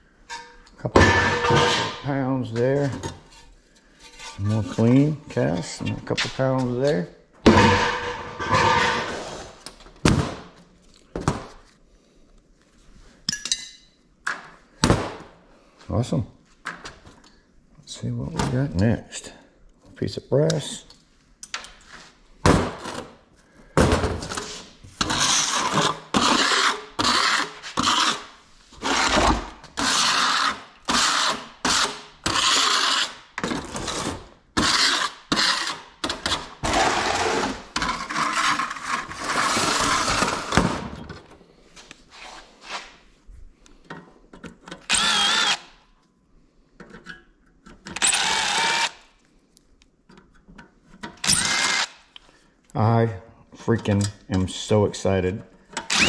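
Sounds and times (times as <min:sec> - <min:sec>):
power drill whirring: 0:25.0 - 0:28.2, 0:28.8 - 0:33.2, 0:34.6 - 0:40.6, 0:44.9 - 0:45.7, 0:48.0 - 0:49.1, 0:51.2 - 0:52.0.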